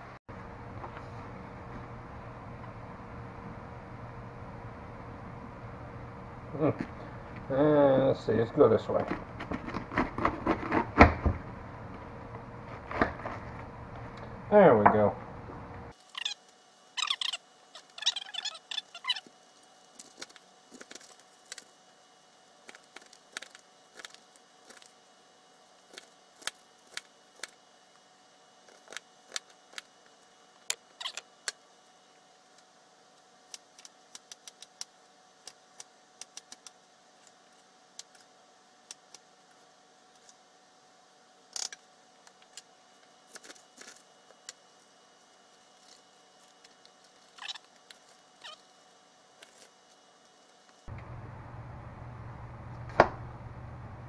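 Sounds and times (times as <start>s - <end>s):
low background hum: 0.0s - 54.0s
knife cutting cabbage: 8.9s - 11.2s.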